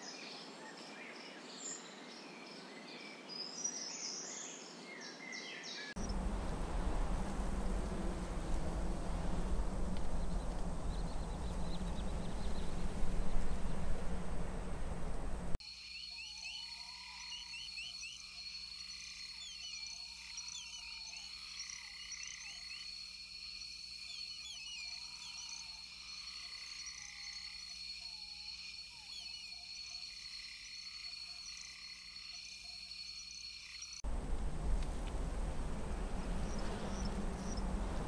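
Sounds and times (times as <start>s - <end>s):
arching lower frog call: 6.0s - 15.6s
insects droning: 6.0s - 38.0s.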